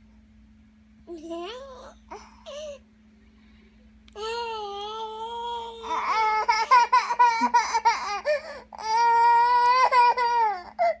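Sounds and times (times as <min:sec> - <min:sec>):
baby crying: 0:04.2 - 0:11.0.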